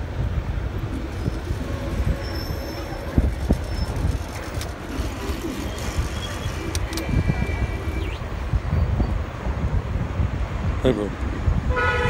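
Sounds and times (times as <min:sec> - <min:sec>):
street traffic rumble: 0:00.0 - 0:12.0
sharp clicks: 0:03.5 - 0:08.2.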